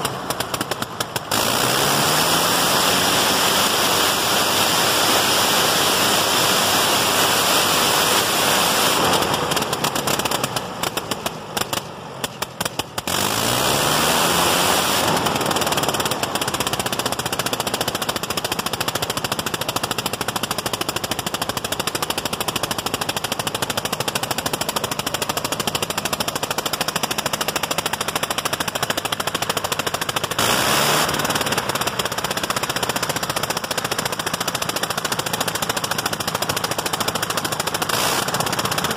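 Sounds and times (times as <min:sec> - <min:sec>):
propeller wind rush: 0:00.0 - 0:38.9
rotary aircraft engine firing: 0:00.0 - 0:38.9.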